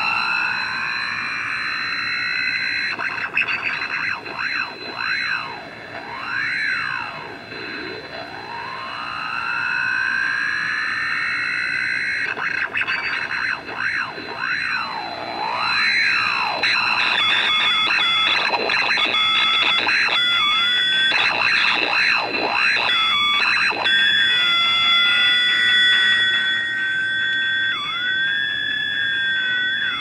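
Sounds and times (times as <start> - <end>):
radio hiss: 0.0 - 30.0
radio whistling tones gliding: 0.0 - 30.0.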